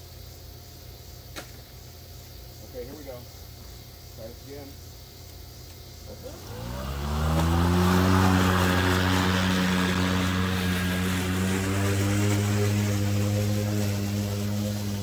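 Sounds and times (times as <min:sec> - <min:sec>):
electric lawn mower whining: 0:06.1 - 0:15.0.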